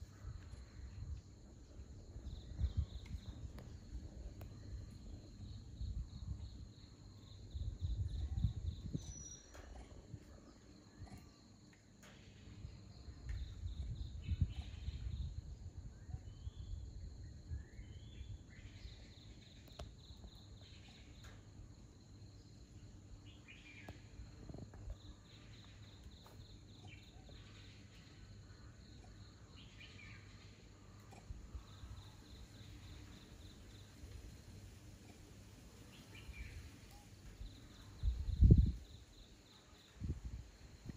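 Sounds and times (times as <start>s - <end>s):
bird chirps: 8.3s - 9.7s.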